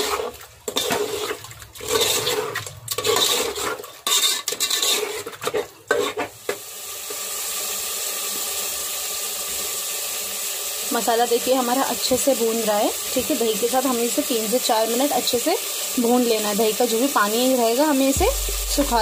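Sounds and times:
metal spoon scraping pot: 0.0s - 6.4s
masala sizzling in pot: 0.0s - 19.0s.

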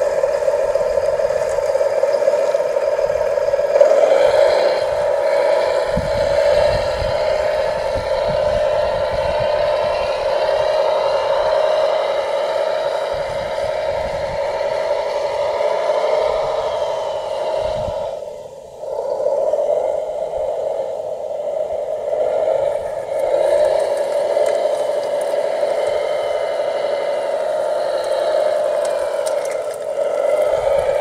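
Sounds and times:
model motors whining: 0.0s - 31.0s.

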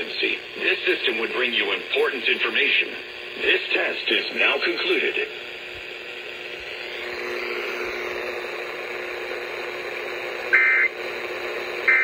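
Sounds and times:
radio hiss with low hum: 0.0s - 12.0s
harsh digital data bursts: 10.5s - 10.9s.

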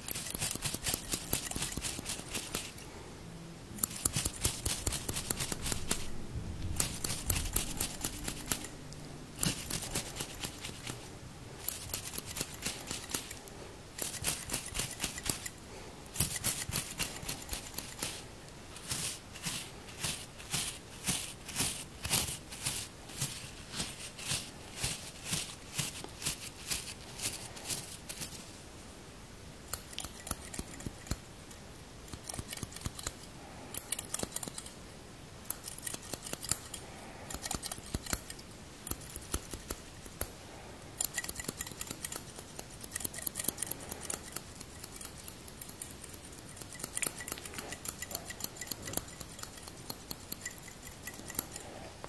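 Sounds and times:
scissors snipping: 0.0s - 2.8s, 3.8s - 6.1s, 6.7s - 8.8s, 11.6s - 13.4s, 29.7s - 31.2s, 32.1s - 34.8s, 35.5s - 40.3s, 41.0s - 51.6s.

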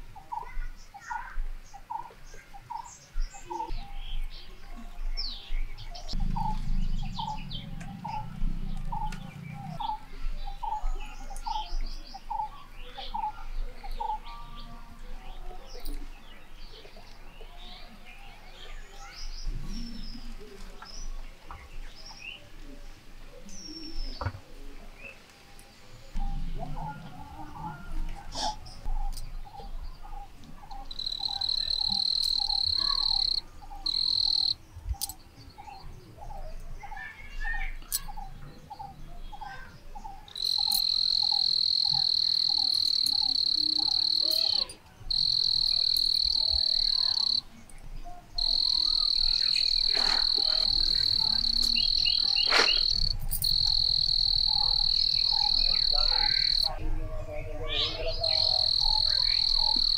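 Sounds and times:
frogs croaking: 6.1s - 14.4s, 26.2s - 35.2s, 38.7s - 47.6s, 48.2s - 59.9s
shrill steady trill: 30.8s - 34.6s, 40.3s - 47.5s, 48.4s - 56.8s, 57.9s - 59.9s.

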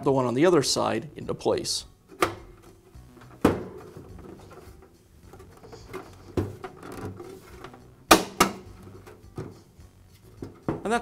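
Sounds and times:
plastic rubbing and handling: 2.5s - 11.0s.

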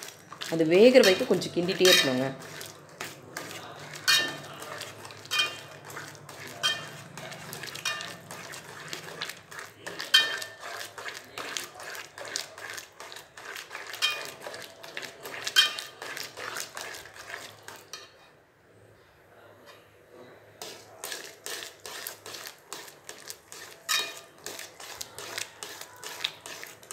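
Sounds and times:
metal spoon scraping pan: 0.0s - 18.3s, 20.6s - 26.9s.

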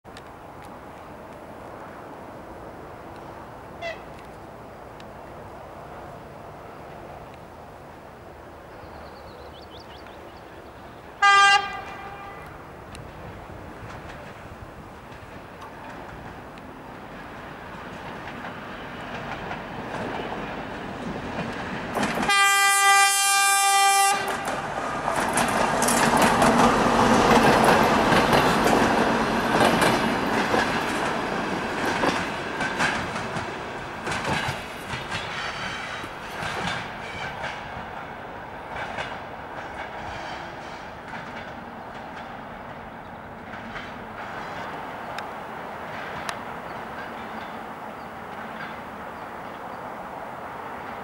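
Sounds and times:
diesel train passing: 0.1s - 51.0s
wheels clicking over rail joints: 11.1s - 51.0s
locomotive horn: 11.2s - 12.6s, 22.2s - 24.6s.

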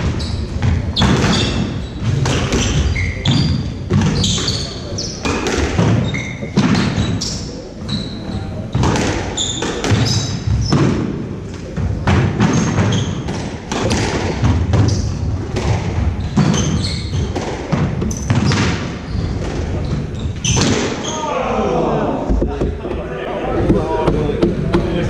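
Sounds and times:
squash ball hits: 0.0s - 7.4s, 8.7s - 21.1s
shoes squeaking on wooden floor: 0.0s - 21.4s.

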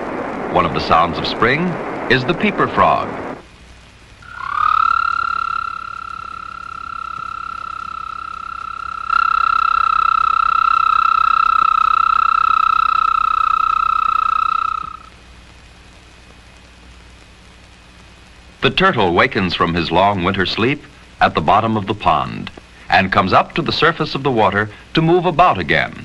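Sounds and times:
toad trilling: 4.2s - 15.1s.

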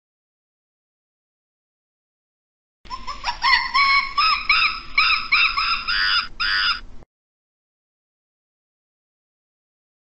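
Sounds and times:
primate calling: 2.9s - 6.9s.

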